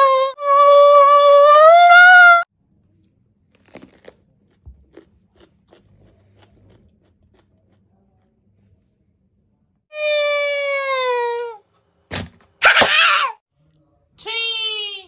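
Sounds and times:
crisp crunches of chewing pepper: 0:03.4 - 0:08.3.

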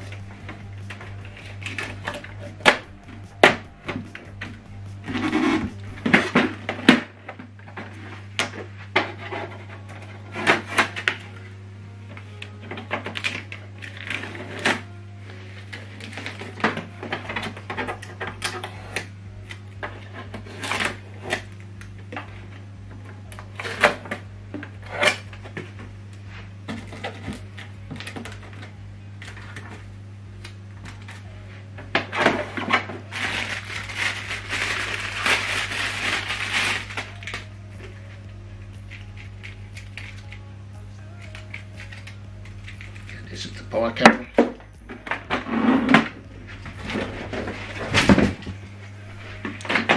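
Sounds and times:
plastic wrapping crinkling: 0:33.0 - 0:45.4
packing tape peeling: 0:33.1 - 0:43.3.

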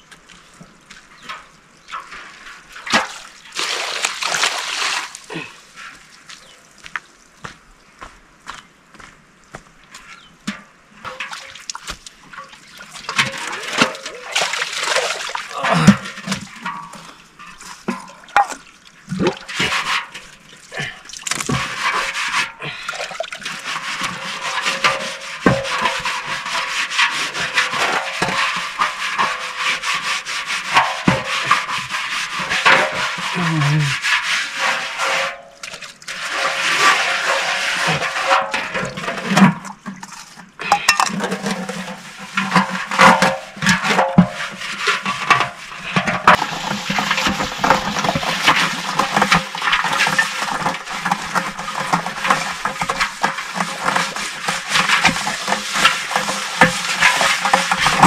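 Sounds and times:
utensil scraping a pan: 0:19.4 - 0:20.4, 0:21.5 - 0:22.7, 0:23.4 - 0:58.0.

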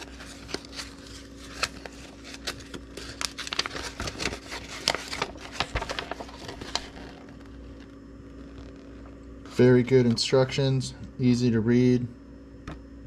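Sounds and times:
paper rustling and crinkling: 0:00.0 - 0:09.2.

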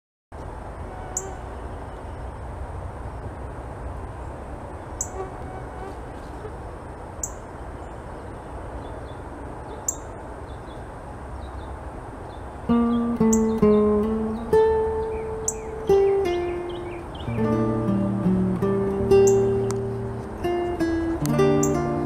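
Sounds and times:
bird chip calls: 0:05.0 - 0:06.5, 0:08.8 - 0:10.8, 0:11.4 - 0:18.0, 0:19.1 - 0:19.9, 0:21.2 - 0:21.9.

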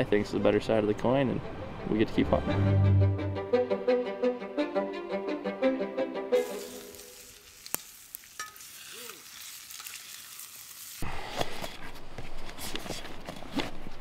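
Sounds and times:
food sizzling in a skillet: 0:06.3 - 0:11.0.

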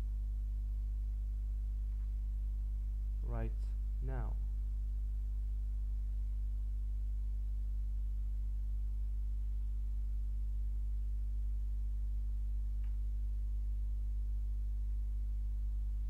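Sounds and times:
steady low hum: 0:00.0 - 0:16.0
faint tick: 0:12.8 - 0:13.0.

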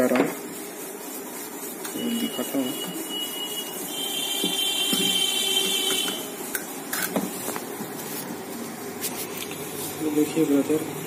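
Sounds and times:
high-pitched electronic buzzer: 0:02.0 - 0:06.3.

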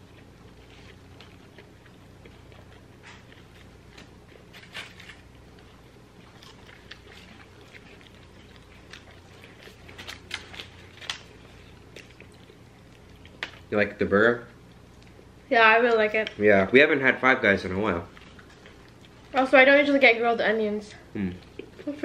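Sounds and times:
chewing and mouth smacks: 0:00.0 - 0:13.7, 0:14.7 - 0:15.3, 0:18.1 - 0:19.4, 0:21.4 - 0:22.0.

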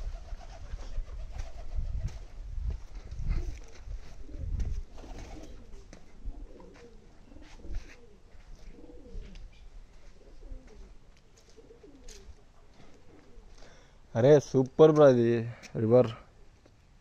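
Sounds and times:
pigeons cooing: 0:03.3 - 0:13.9.

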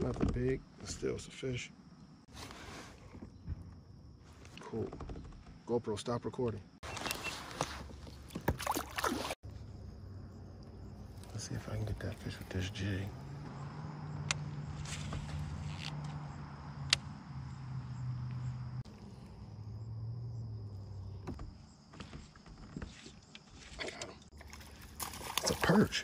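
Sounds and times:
insect trill: 0:08.6 - 0:26.0
sharp clicks: 0:16.8 - 0:17.1.

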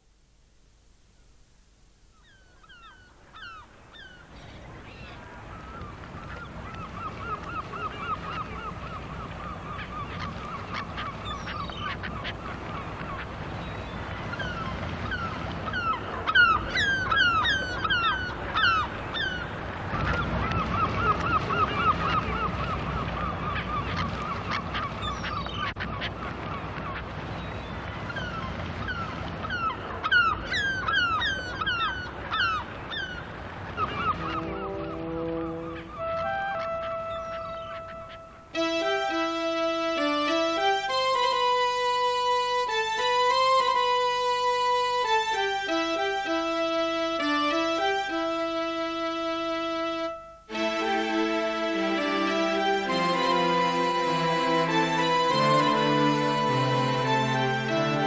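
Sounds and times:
waterbirds chattering: 0:02.1 - 0:50.5
sharp piping bird cries: 0:02.2 - 0:26.1, 0:26.9 - 0:38.6.

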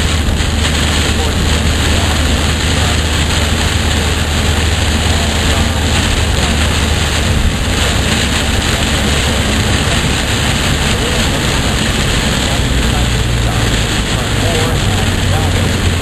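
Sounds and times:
low engine drone: 0:00.0 - 0:16.0
rain on car roof: 0:00.0 - 0:16.0
tyre and road noise: 0:00.0 - 0:16.0.

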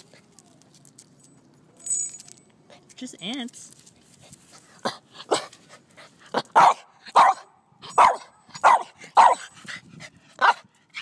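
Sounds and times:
small dog barking: 0:06.6 - 0:09.5, 0:10.4 - 0:10.7.

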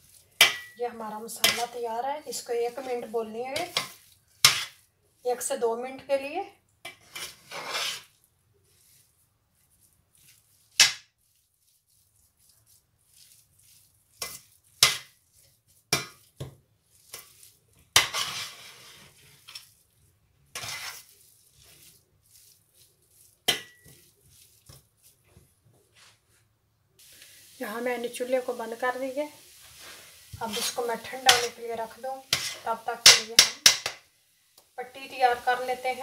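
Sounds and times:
spoon scraping a metal pan: 0:00.0 - 0:06.1, 0:06.8 - 0:08.2, 0:14.1 - 0:16.4, 0:17.0 - 0:19.8, 0:20.5 - 0:22.6, 0:23.2 - 0:24.8, 0:27.9 - 0:34.0, 0:34.8 - 0:36.0.

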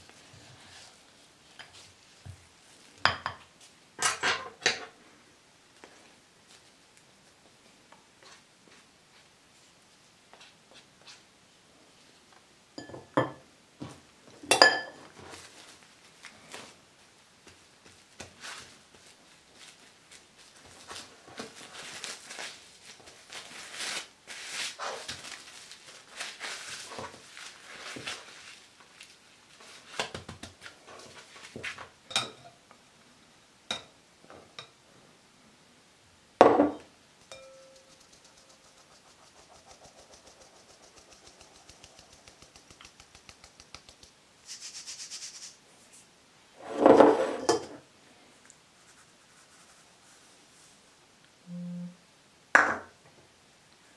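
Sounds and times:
flour sieve patter: 0:15.0 - 0:31.9, 0:37.2 - 0:46.1
plastic wrap crinkling: 0:18.0 - 0:30.0
spatula clicking and scraping: 0:37.2 - 0:44.2.

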